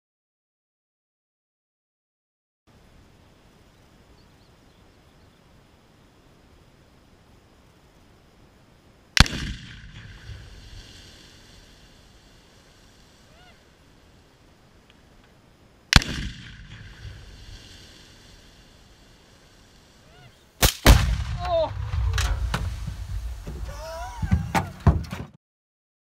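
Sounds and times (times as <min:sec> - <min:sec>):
rifle shot: 0:09.2 - 0:11.0, 0:15.9 - 0:18.1, 0:20.6 - 0:23.4
explosion with rumbling echo: 0:20.8 - 0:23.7.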